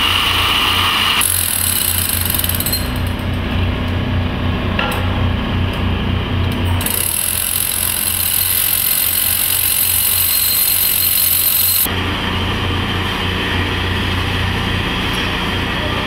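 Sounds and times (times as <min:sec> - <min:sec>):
track drill motor drone: 0:00.0 - 0:03.2, 0:06.8 - 0:12.8
drill high hiss: 0:06.9 - 0:11.9.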